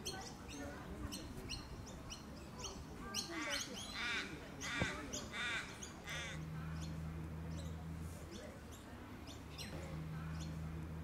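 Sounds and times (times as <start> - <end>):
low steady hum: 0.0 - 11.0
small birds chirping: 0.0 - 11.0
crow-like caw: 4.1 - 6.4.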